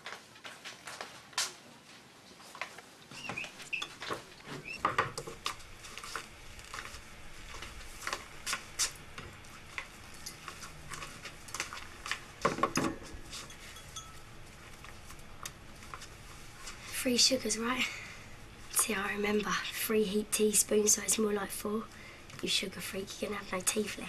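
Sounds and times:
small clinks and knocks: 13.3 - 14.9.

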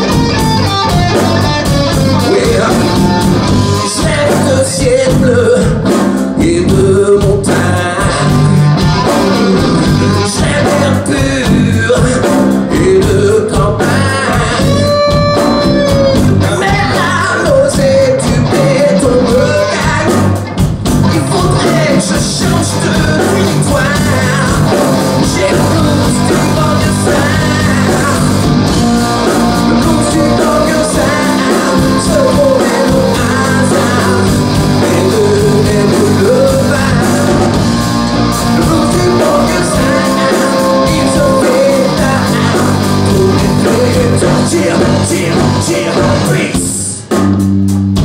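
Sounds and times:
lead vocal singing: 0.0 - 47.1
live rock band playing: 0.0 - 48.0.

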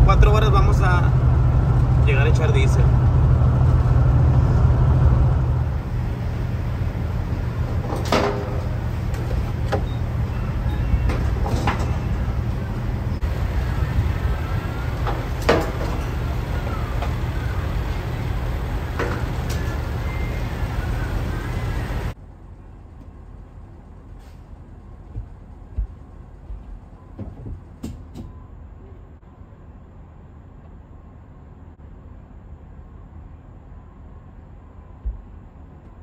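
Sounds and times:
diesel truck engine rumble: 0.0 - 29.2.

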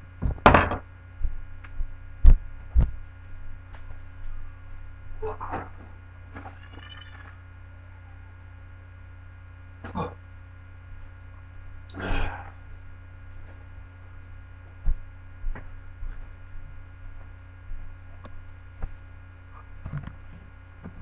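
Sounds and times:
electrical mains hum: 0.0 - 21.0
sharp knocks: 0.2 - 0.9.

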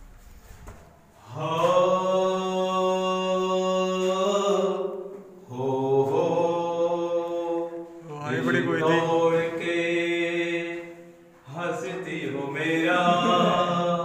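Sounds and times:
man singing long notes: 5.5 - 10.9, 11.5 - 14.0.

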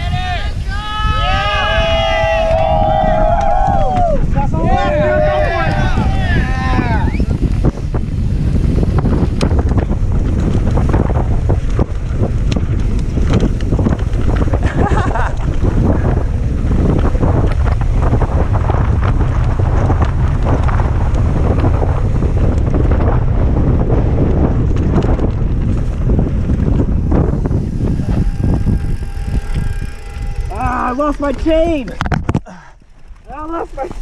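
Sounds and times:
heavy wind on microphone: 0.0 - 34.0
bike knocks and rattles: 7.3 - 34.0.

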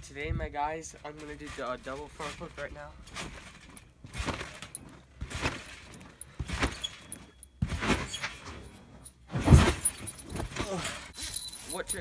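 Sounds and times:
trampoline springs creaking: 1.0 - 12.0
trampoline mat thumping: 3.1 - 8.6, 9.2 - 11.0.

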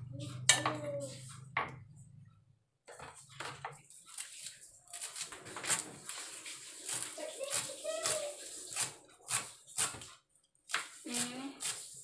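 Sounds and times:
knife chopping on wooden board: 10.7 - 11.8.

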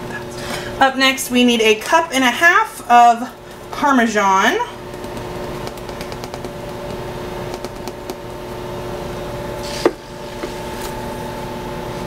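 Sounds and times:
steady background hum: 0.0 - 12.0
cup knocking on plastic bowl: 4.9 - 8.2.

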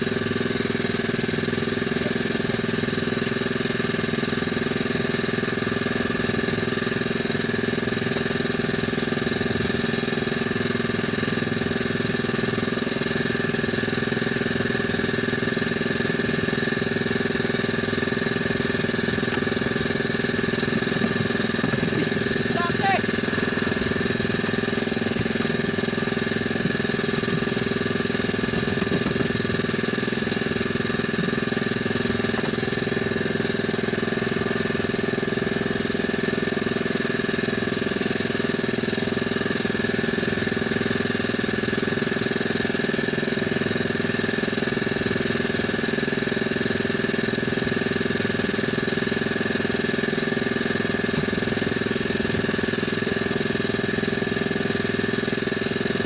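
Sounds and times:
boat engine running: 0.0 - 56.0
engine whine: 0.0 - 56.0.

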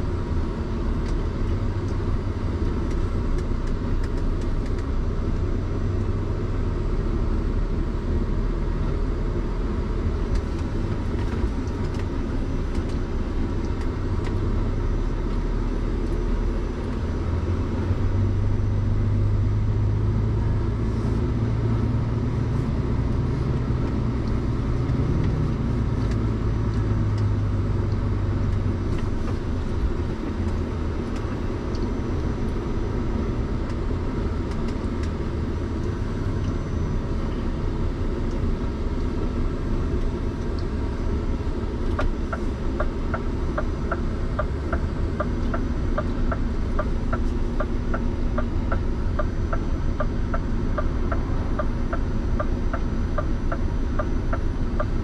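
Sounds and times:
truck engine and road rumble: 0.0 - 55.0
regular ticking: 41.9 - 55.0.

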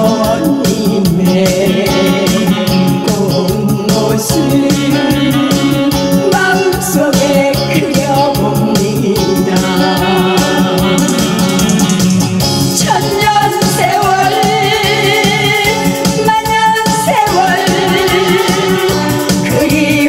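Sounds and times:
backing track with drum beat: 0.0 - 20.0
woman singing into a microphone: 0.0 - 20.0.

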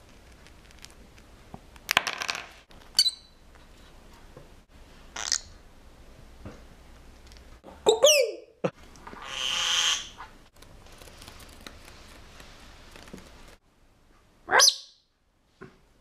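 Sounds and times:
lovebird chirps and squawks: 3.0 - 3.4, 5.2 - 5.6, 9.2 - 10.2, 14.5 - 15.0.

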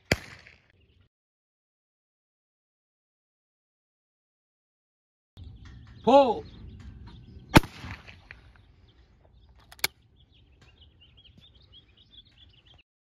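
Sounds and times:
shotgun shot: 0.0 - 0.6, 7.5 - 8.4
faint bird chirps: 8.4 - 12.8.

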